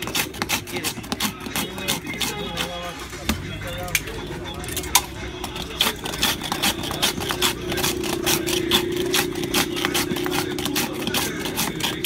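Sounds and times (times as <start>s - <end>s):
metal ice shaver scraping ice: 0.0s - 3.1s, 3.8s - 12.0s
steady low hum: 2.9s - 12.0s.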